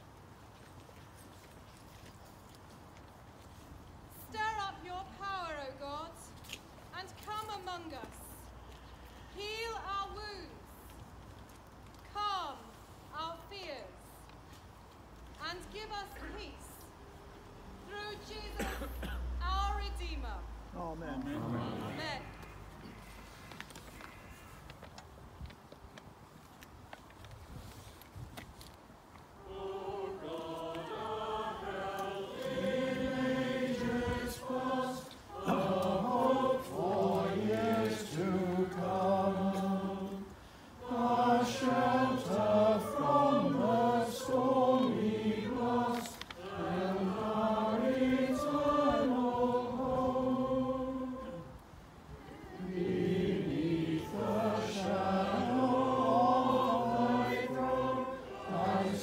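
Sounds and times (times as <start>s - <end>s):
choir singing: 21.2s - 22.2s, 29.4s - 51.6s, 52.2s - 59.0s.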